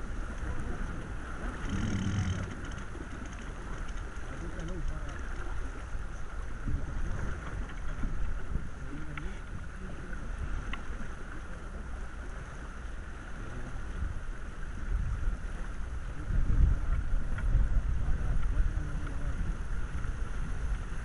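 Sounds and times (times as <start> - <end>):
water rushing along boat hull: 0.0 - 21.0
wind buffeting microphone: 0.0 - 21.0
faint clicks of boat fittings: 0.3 - 11.8, 16.9 - 17.6, 18.2 - 20.8.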